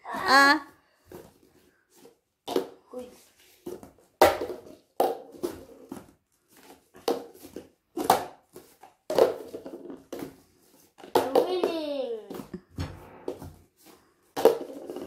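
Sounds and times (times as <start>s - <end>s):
plastic cups clacking on glass: 4.2s - 5.9s, 6.6s - 12.7s, 14.3s - 15.0s.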